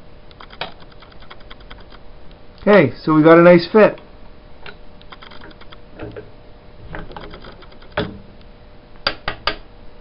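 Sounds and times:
sharp metallic clicks: 4.7s - 5.8s, 7.2s - 8.2s
steel parts clicking together: 7.0s - 8.1s.

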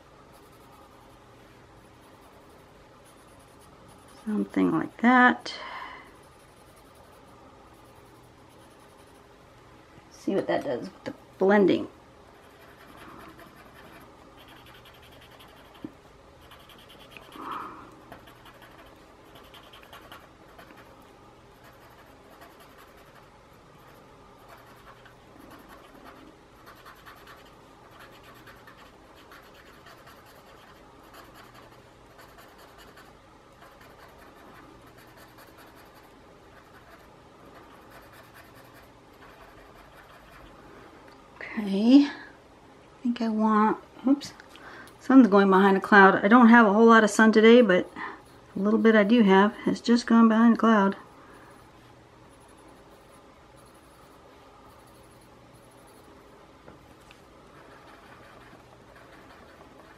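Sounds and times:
soft scratching on paper: 0.3s - 5.4s, 6.1s - 9.3s, 12.3s - 21.0s, 21.6s - 40.6s, 51.2s - 56.2s, 56.9s - 59.9s.

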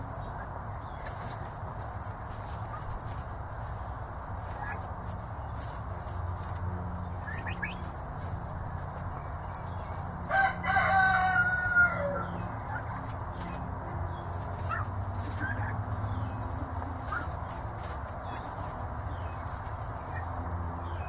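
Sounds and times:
young turkeys calling: 0.0s - 21.0s
short peeps: 7.2s - 7.8s
loud trilling turkey call: 7.2s - 8.0s.

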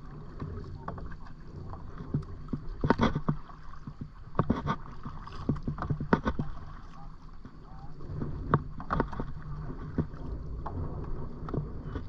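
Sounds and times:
paddle strokes in water: 0.0s - 12.0s
steady low rumble: 6.0s - 12.0s.

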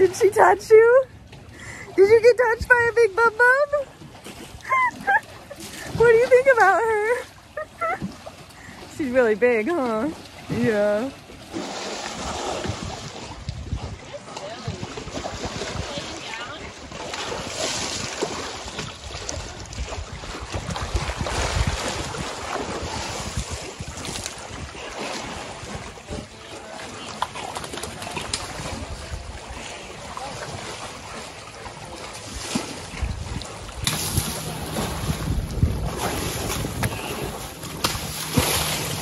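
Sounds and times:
elephant splashing water: 3.7s - 39.0s
wind rumbling on microphone: 12.1s - 26.4s, 28.0s - 30.6s, 32.3s - 39.0s.

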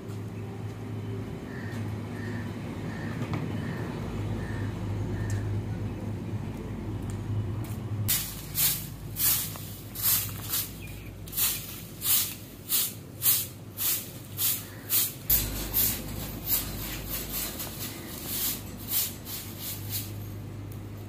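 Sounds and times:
broom swishing on concrete: 8.1s - 20.5s.

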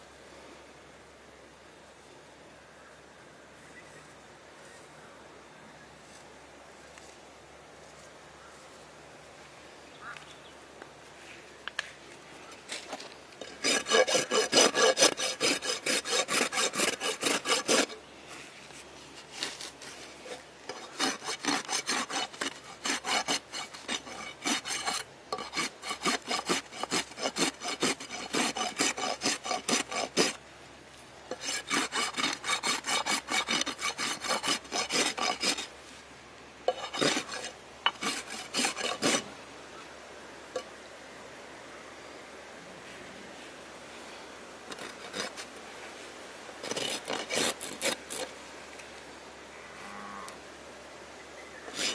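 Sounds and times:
rasp scraping hoof: 13.4s - 18.0s, 19.2s - 30.4s, 31.3s - 35.7s, 36.7s - 39.2s, 46.6s - 48.3s.

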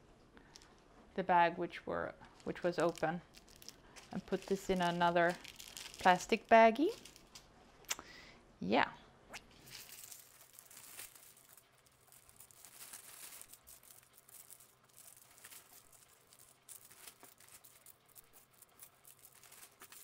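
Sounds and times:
plastic bags crinkling: 2.3s - 7.5s, 9.5s - 20.0s.

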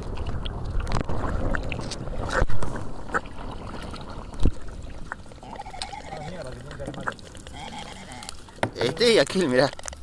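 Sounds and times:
paddle splashing in water: 0.0s - 10.0s
water dripping: 3.1s - 10.0s.

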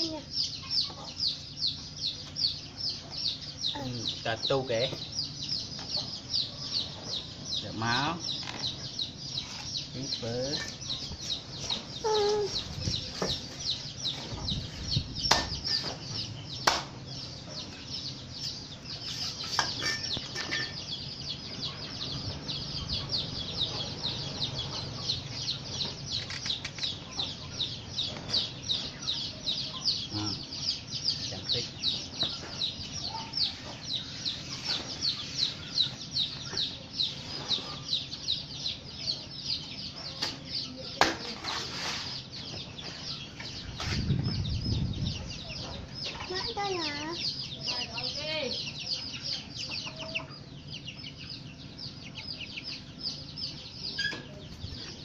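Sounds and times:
chicken clucking: 45.2s - 55.0s.

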